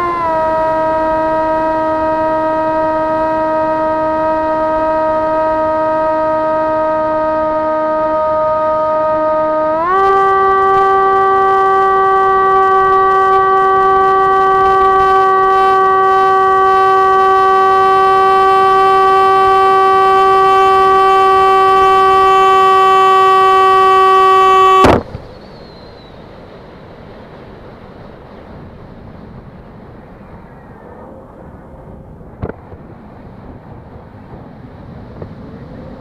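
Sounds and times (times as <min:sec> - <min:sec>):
model aircraft motor whine: 0:00.0 - 0:25.7.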